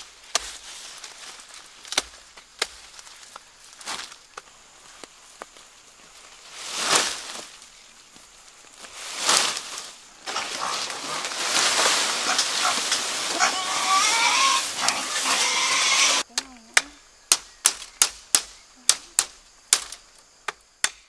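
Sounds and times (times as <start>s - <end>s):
corn leaves rustling: 0.0s - 16.6s
corn stalks swishing: 6.2s - 7.8s, 8.7s - 16.2s
pig calling: 12.1s - 16.2s.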